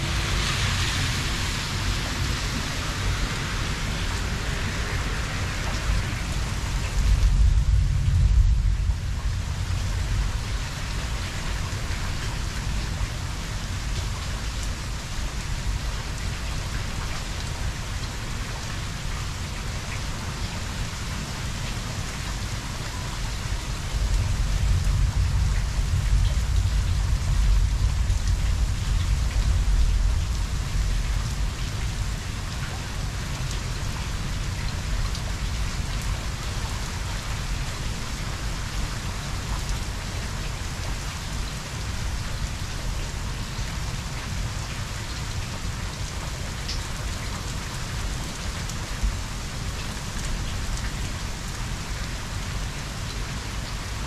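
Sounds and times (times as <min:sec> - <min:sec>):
heavy rain falling: 0:00.0 - 0:54.0
thunder rumbling: 0:07.0 - 0:10.4.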